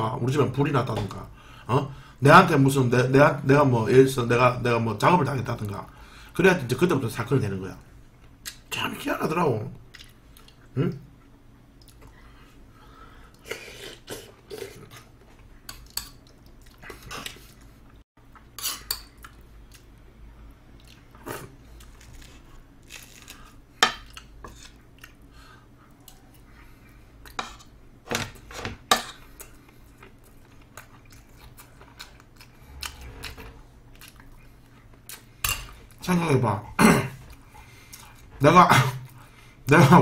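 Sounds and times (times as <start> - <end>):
chewing: 20.8 - 27.4, 29.3 - 36.0.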